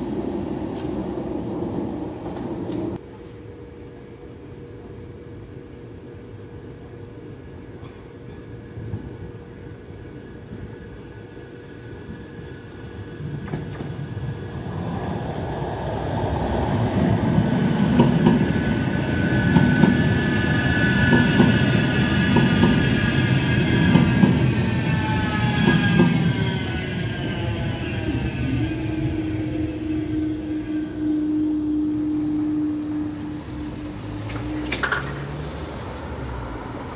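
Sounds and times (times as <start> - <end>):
tram wheels rumbling on rails: 0.0 - 3.0, 7.8 - 36.9
high whine: 16.6 - 34.9.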